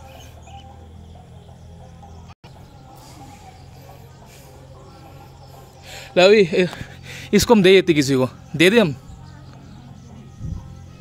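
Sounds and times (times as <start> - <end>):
faint bird chirps: 0.0 - 7.3.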